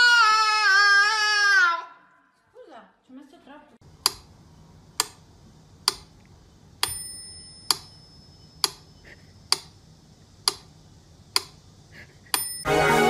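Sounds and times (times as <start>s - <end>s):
clock ticking: 4.0s - 4.3s, 5.8s - 6.1s, 8.6s - 9.8s, 10.4s - 10.7s, 11.3s - 11.6s
bright bell ring: 6.8s - 8.6s, 12.4s - 13.0s.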